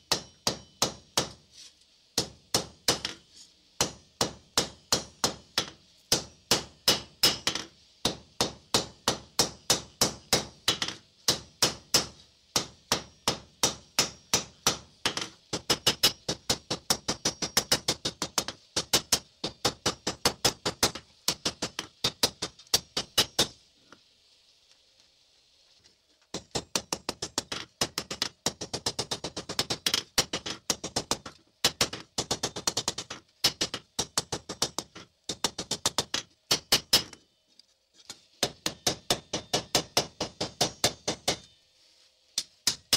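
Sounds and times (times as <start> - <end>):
hammer striking steel on anvil: 0.0 - 1.4, 2.2 - 3.2, 3.8 - 23.6, 38.4 - 41.5, 42.4 - 42.9
faint hiss: 0.0 - 42.9.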